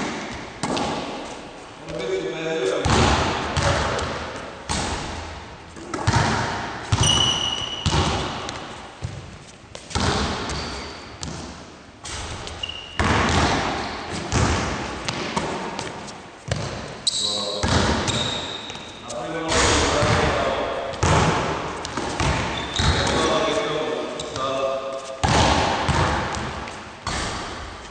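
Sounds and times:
basketballs bouncing on wooden floor: 0:00.0 - 0:01.3, 0:02.8 - 0:24.6, 0:25.2 - 0:27.8
shoes squeaking on floor: 0:06.9 - 0:11.3, 0:12.2 - 0:13.1, 0:15.0 - 0:21.0, 0:21.7 - 0:25.3.

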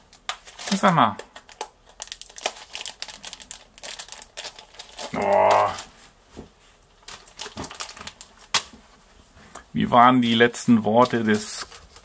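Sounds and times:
plastic packaging crackling: 0:00.0 - 0:06.0, 0:06.9 - 0:08.8, 0:10.2 - 0:12.0
person humming with effort: 0:05.1 - 0:05.9.

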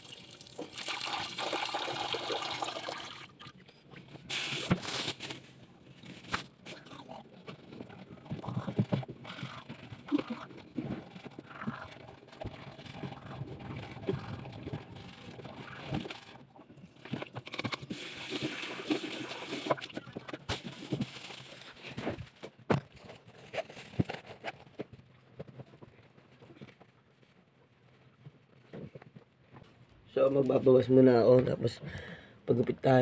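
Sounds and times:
rinsing and spitting: 0:00.0 - 0:05.2, 0:06.6 - 0:21.8
knocks and handling sounds: 0:19.7 - 0:30.1.

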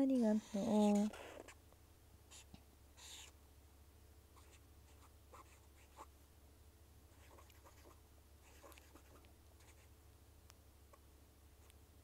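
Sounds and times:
low steady hum: 0:00.0 - 0:12.0
pen scratching on paper: 0:04.4 - 0:06.1, 0:07.2 - 0:09.9.

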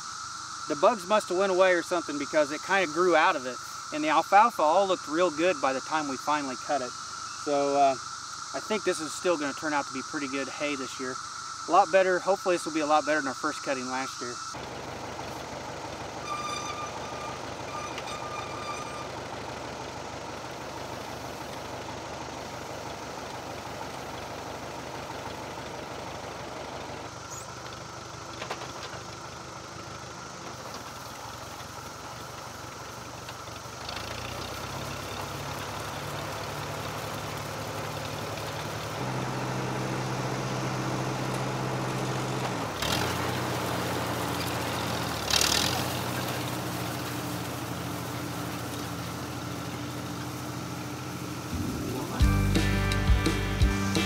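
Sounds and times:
tractor engine running: 0:00.0 - 0:54.0.

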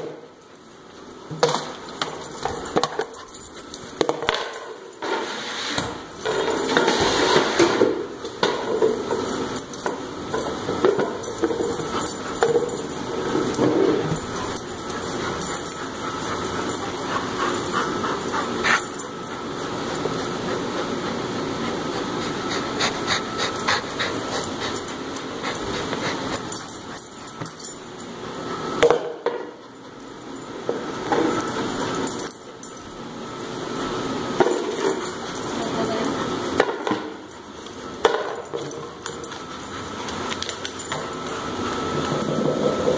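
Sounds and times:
dog panting: 0:14.0 - 0:27.6, 0:39.2 - 0:41.0.

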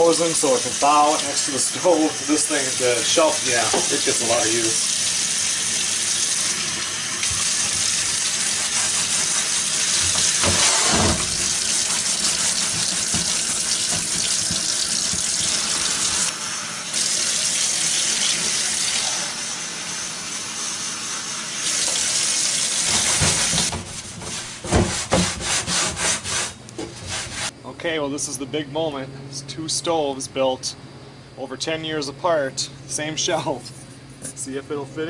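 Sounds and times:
faucet water running into sink: 0:00.0 - 0:20.1, 0:21.1 - 0:23.8
towel rubbing across shelf: 0:10.2 - 0:13.1, 0:22.9 - 0:27.5.

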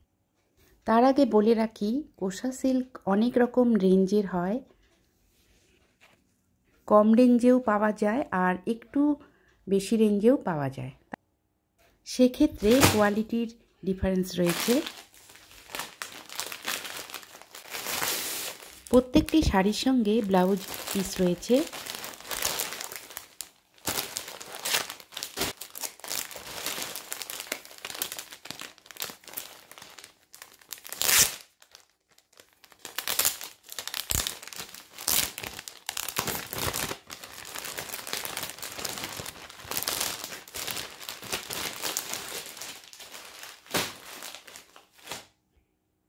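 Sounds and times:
plastic packets crinkling: 0:12.6 - 0:13.3, 0:14.2 - 0:45.3.

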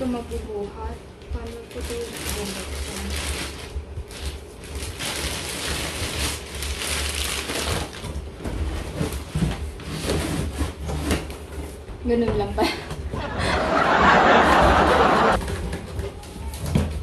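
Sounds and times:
plastic wrapping crinkling: 0:01.4 - 0:08.3.

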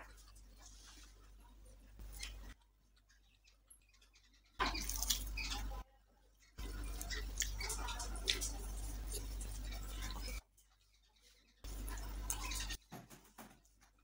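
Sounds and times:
wet chewing and mouth smacking: 0:06.6 - 0:10.4.

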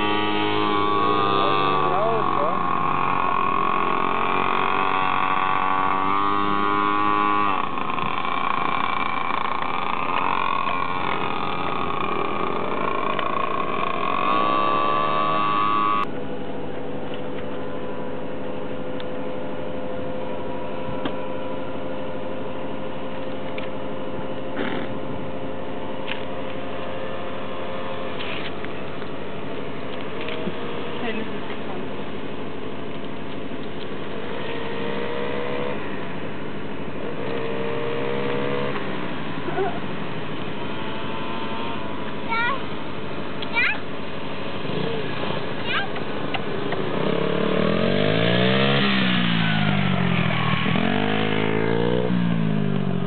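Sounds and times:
mini motorbike engines revving: 0:00.0 - 0:17.6, 0:23.0 - 0:53.0
steady engine hum: 0:00.0 - 0:53.0.

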